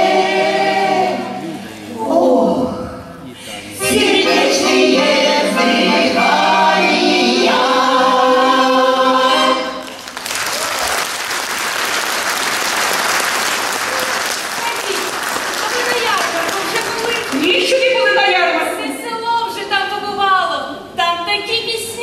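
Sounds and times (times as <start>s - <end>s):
choir singing: 0.0s - 2.4s, 3.7s - 9.9s
audience applause: 9.8s - 17.8s.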